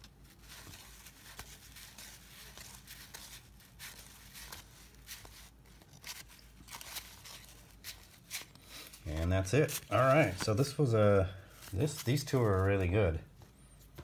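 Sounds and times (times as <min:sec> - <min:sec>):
cardboard cards sliding and flicking: 0:00.0 - 0:09.0.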